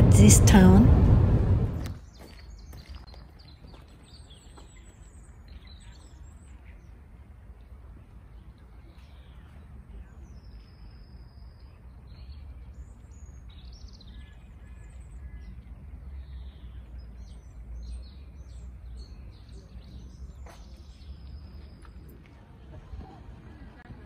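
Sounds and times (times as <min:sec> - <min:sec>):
steady low rumble: 0:00.0 - 0:02.0
songbirds chirping and whistling: 0:01.8 - 0:22.2.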